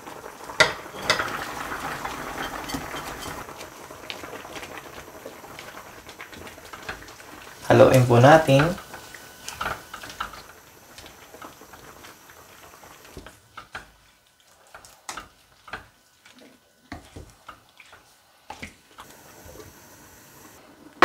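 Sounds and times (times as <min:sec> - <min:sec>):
soup sloshing: 0:00.9 - 0:03.6.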